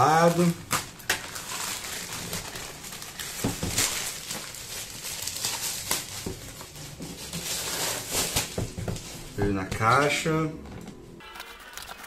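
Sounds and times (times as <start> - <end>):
packaging rustling and crinkling: 0.0 - 9.3.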